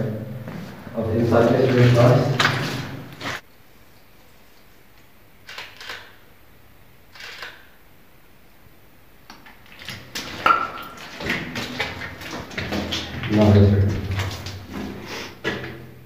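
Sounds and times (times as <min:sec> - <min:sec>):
shuffling footsteps: 0:00.0 - 0:03.4, 0:09.6 - 0:16.0
handling noise: 0:00.4 - 0:03.4, 0:09.3 - 0:16.0.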